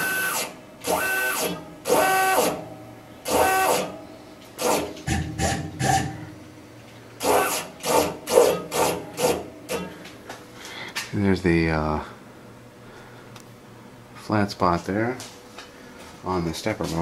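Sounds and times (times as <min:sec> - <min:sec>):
stepper motor whine: 0:00.0 - 0:02.6, 0:03.2 - 0:04.0, 0:07.2 - 0:09.4.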